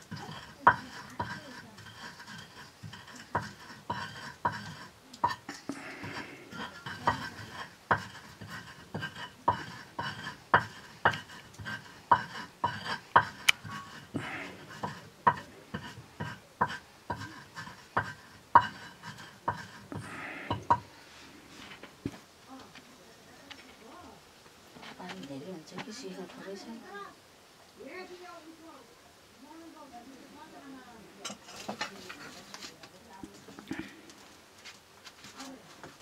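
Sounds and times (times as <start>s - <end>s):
stone knocking on stone: 2.4s - 11.3s, 12.1s - 13.8s, 14.8s - 20.9s.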